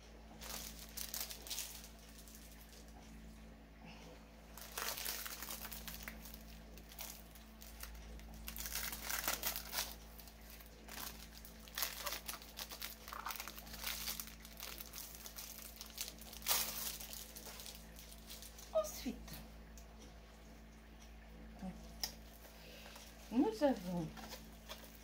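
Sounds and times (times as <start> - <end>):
plastic wrapping crinkling: 0.4 - 3.0, 4.5 - 18.8, 22.3 - 25.0.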